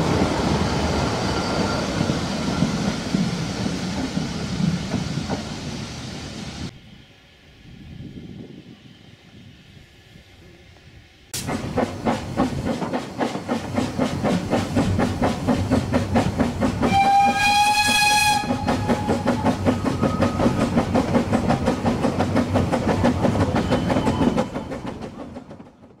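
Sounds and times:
steam locomotive exhaust beating: 10.8s - 25.9s
steam whistle blast: 16.8s - 19.3s.

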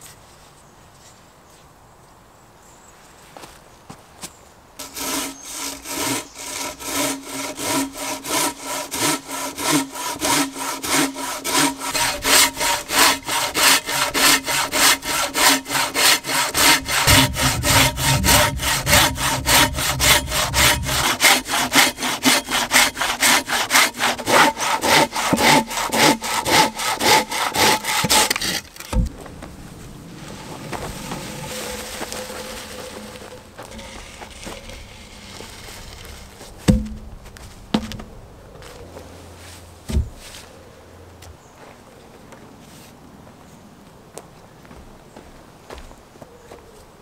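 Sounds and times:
hand saw cutting a log: 4.8s - 29.0s, 31.0s - 37.0s
thump: 16.5s - 21.5s, 28.9s - 29.6s, 30.3s - 38.1s, 39.9s - 40.2s.

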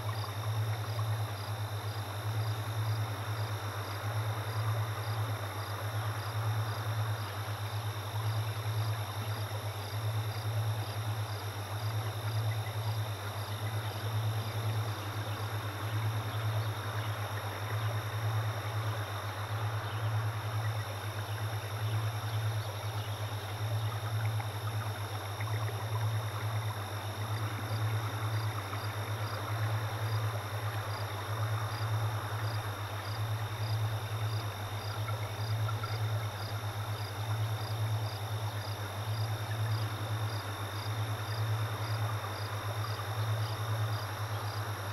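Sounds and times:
low electrical hum: 0.0s - 44.9s.

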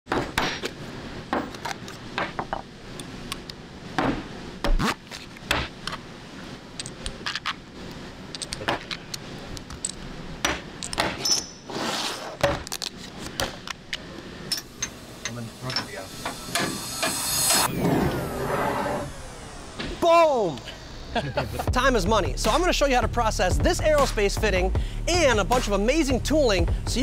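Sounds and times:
short sliding rush: 11.7s - 12.4s, 16.6s - 19.5s.

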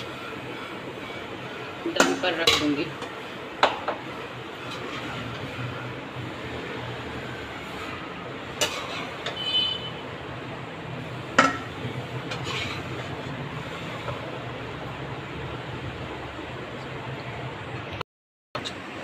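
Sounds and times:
metal spoon scraping pots: 1.6s - 6.0s, 7.7s - 9.5s, 11.4s - 14.3s.

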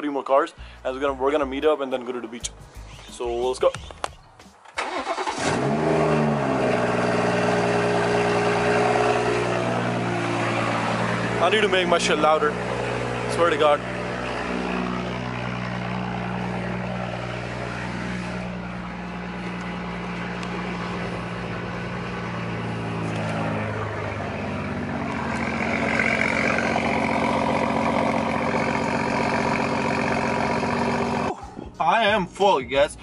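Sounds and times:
car engine idling: 4.8s - 33.0s.

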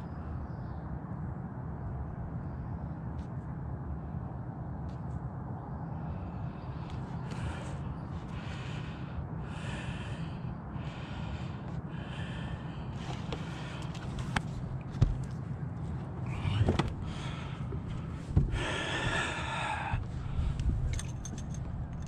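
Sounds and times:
steady low rumble: 0.0s - 22.0s
soft breathing close to microphone: 5.9s - 14.6s, 16.2s - 21.6s
knocks of handled gear: 14.2s - 15.4s.

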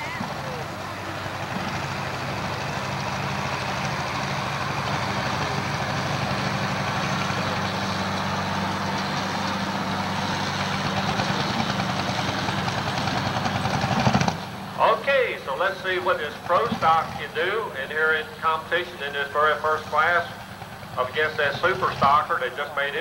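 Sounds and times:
tractor engine running: 0.0s - 23.0s.

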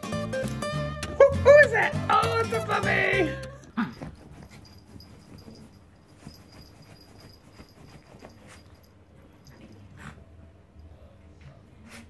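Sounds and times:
scuffling on bedding: 3.8s - 8.9s
quiet dog noises: 3.8s - 12.0s.

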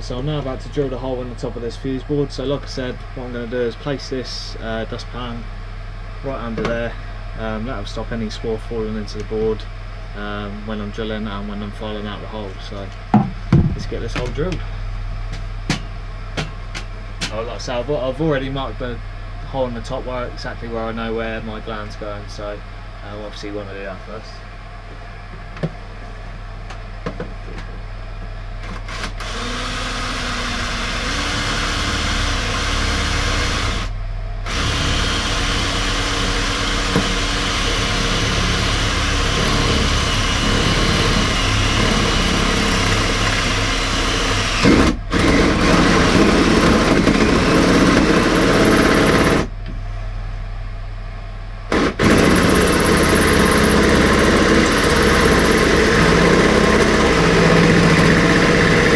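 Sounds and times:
power drill boring through metal: 28.9s - 33.9s, 34.5s - 49.5s, 51.7s - 58.9s.

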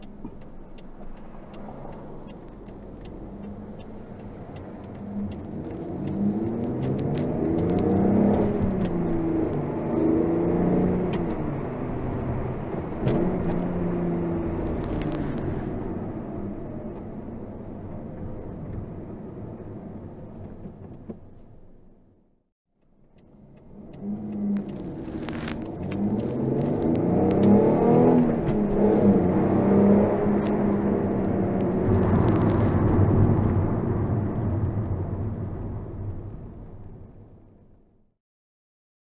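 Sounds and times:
car engine revving: 0.0s - 17.4s, 23.0s - 36.3s.

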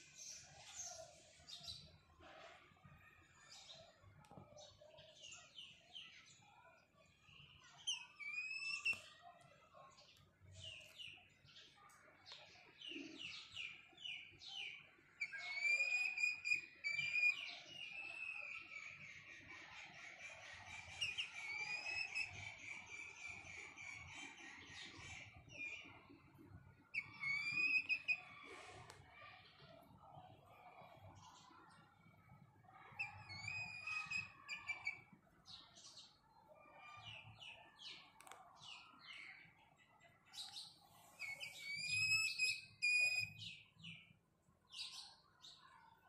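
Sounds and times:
young junglefowl chirping: 15.3s - 26.0s, 26.9s - 28.8s, 32.9s - 35.1s, 40.9s - 43.4s.

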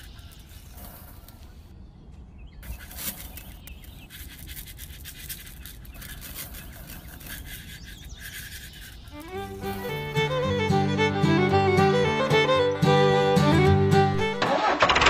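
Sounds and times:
fingers brushing sand: 2.6s - 10.9s.

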